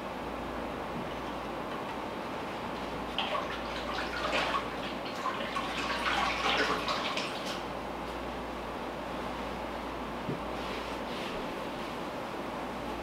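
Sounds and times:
tap water splashing in sink: 3.2 - 7.6.

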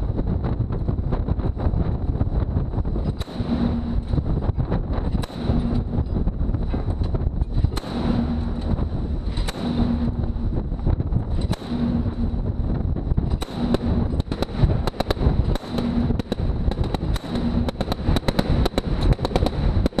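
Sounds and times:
rumble of wind and sea: 0.0 - 20.0
machine gun firing: 3.0 - 4.4, 5.0 - 6.0, 7.6 - 10.7, 11.3 - 12.6, 13.2 - 20.0.

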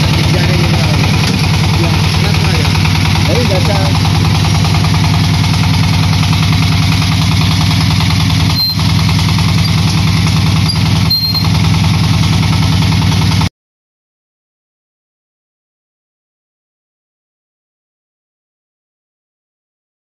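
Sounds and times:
diesel engine running: 0.0 - 13.5.

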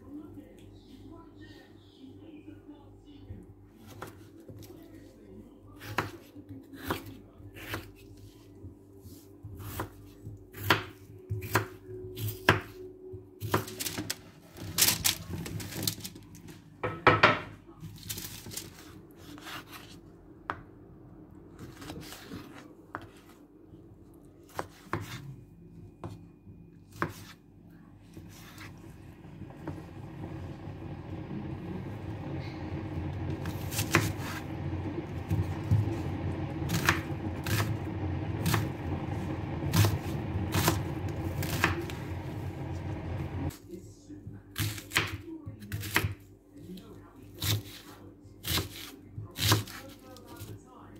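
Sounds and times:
knife chopping on cutting board: 5.8 - 6.2, 6.8 - 7.9, 9.6 - 12.7, 24.5 - 25.2, 26.9 - 27.4, 33.5 - 34.4, 38.4 - 38.6, 39.7 - 40.8, 41.4 - 41.8
steady noise: 28.7 - 43.5.

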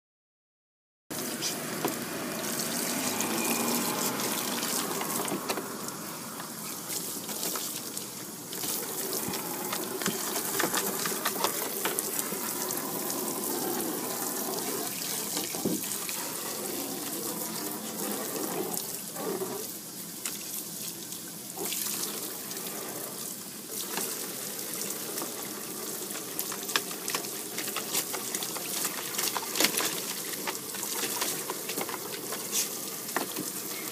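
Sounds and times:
hose water splashing into tub: 1.1 - 33.9
dog snapping and lapping water: 6.9 - 13.1, 26.0 - 33.8.

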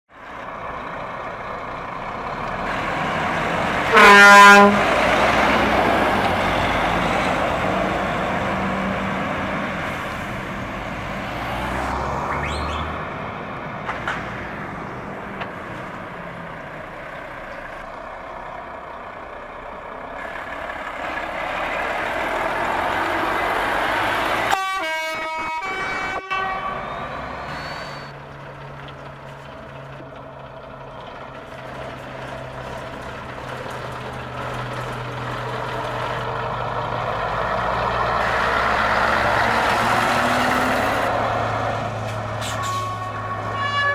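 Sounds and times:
truck engines with open exhausts: 0.1 - 43.9
truck idling: 0.1 - 43.9
air horn blast: 3.8 - 5.0, 24.5 - 26.9, 42.4 - 43.9.

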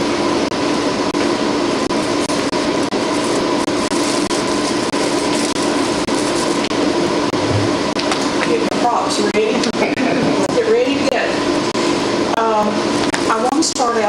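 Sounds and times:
steady hum: 0.0 - 14.0.

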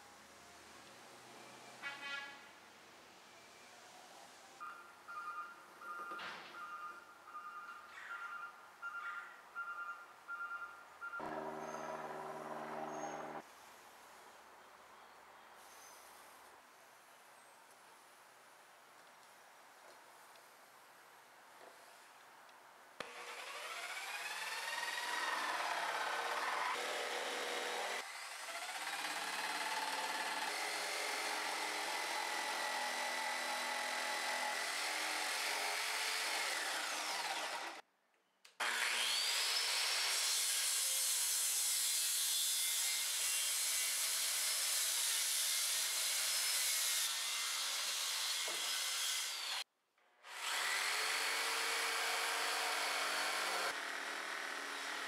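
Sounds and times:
circular saw cutting lumber: 11.2 - 13.4, 23.0 - 37.8, 38.6 - 49.6, 50.3 - 55.0
jigsaw cutting lumber: 11.2 - 13.4, 23.0 - 37.8, 38.6 - 49.6, 50.3 - 55.0.

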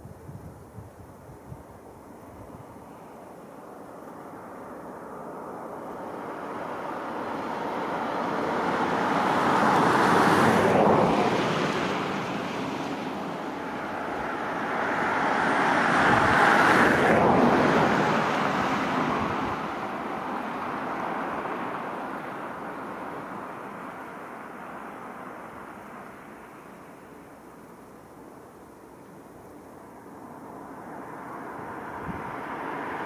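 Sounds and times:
cars passing on road: 0.2 - 33.0.

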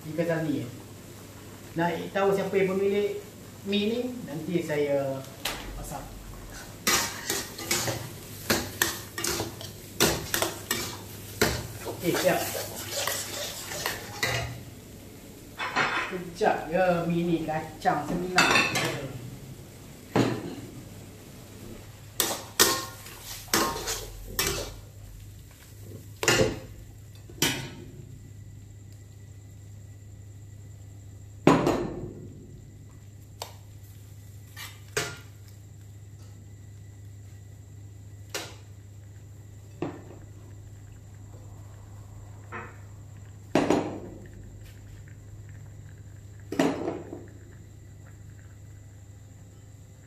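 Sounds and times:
faint steady hum: 0.0 - 50.0
ladles clanking against a wok: 6.5 - 14.6, 22.2 - 24.8.

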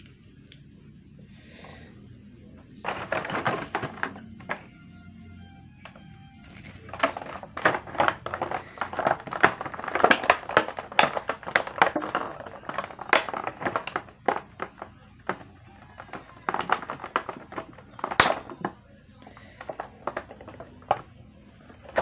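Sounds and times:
handling crinkles and clicks: 2.8 - 4.8, 5.8 - 22.0.

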